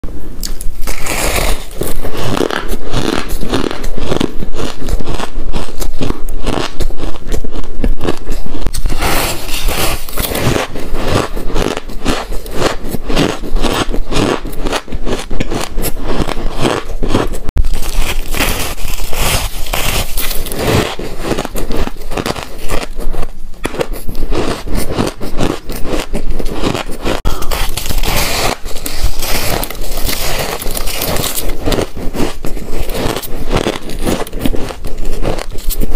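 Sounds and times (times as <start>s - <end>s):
ice crunching being chewed: 0.5s - 35.9s.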